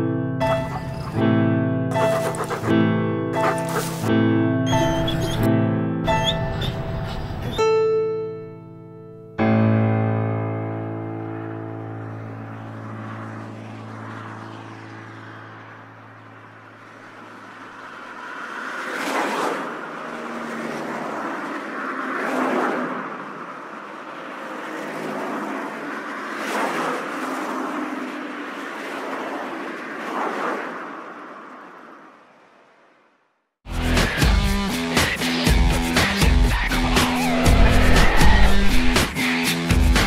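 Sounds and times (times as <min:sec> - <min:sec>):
piano chord: 0:02.8 - 0:16.6
cars whooshing past: 0:10.8 - 0:33.2, 0:36.6 - 0:39.8.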